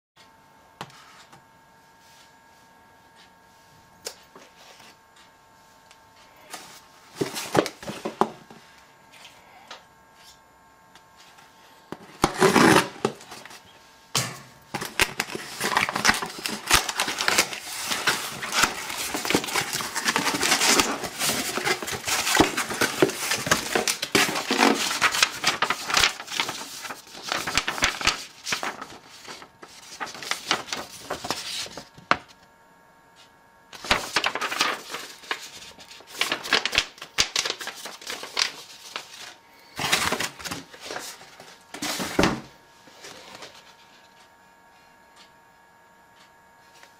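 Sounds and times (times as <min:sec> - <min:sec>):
cardboard crackling and tearing: 0:12.2 - 0:13.5, 0:14.8 - 0:31.9, 0:33.8 - 0:42.2.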